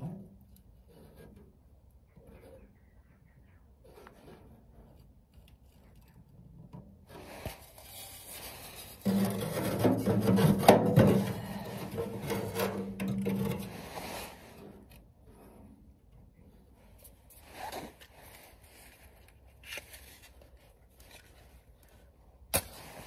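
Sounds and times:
metal chimney scraping: 8.4 - 15.6.

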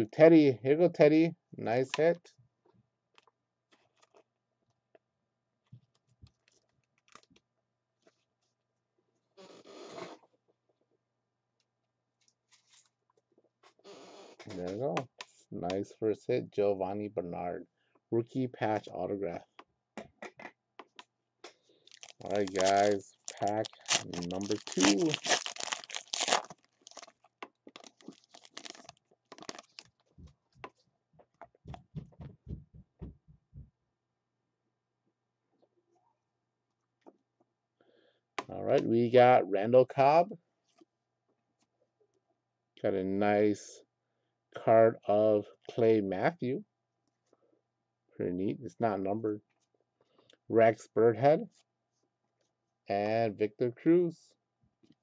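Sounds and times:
packaging rustle: 21.8 - 30.2.

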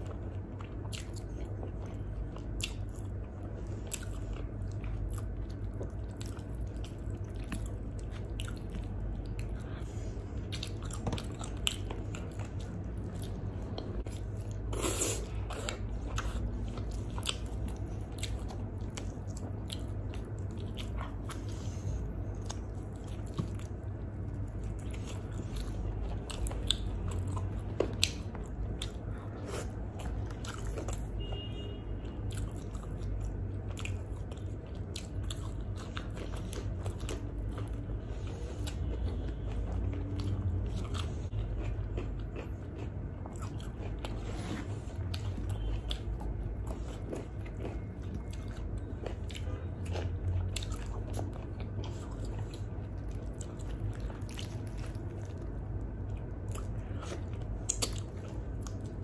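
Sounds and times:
close chewing with mouth clicks: 0.0 - 59.0.

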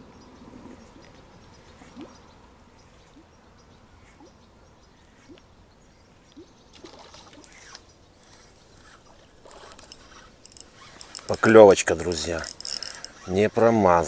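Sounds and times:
popper lure blooping on water: 6.4 - 7.8
spinning reel winding: 7.4 - 13.4.

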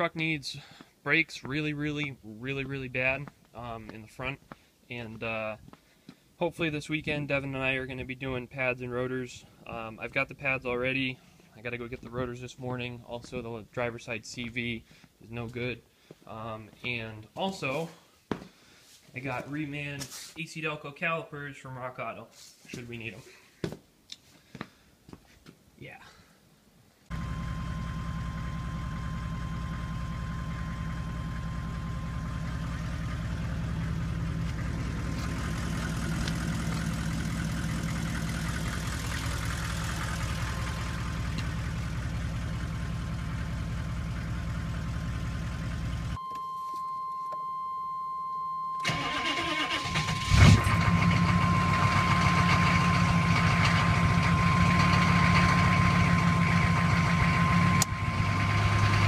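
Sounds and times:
truck engine idling: 27.1 - 46.2, 48.8 - 59.0
high whine: 27.1 - 59.0
engine starting: 48.8 - 53.9.

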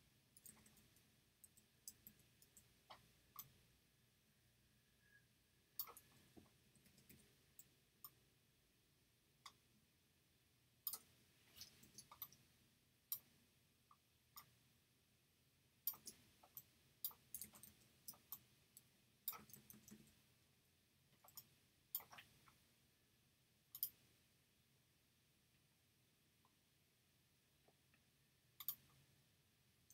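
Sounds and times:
computer mouse and keyboard clicks: 0.4 - 3.6, 5.8 - 8.2, 10.8 - 12.4, 15.8 - 20.2, 21.2 - 22.6, 23.7 - 24.0, 28.6 - 29.0.

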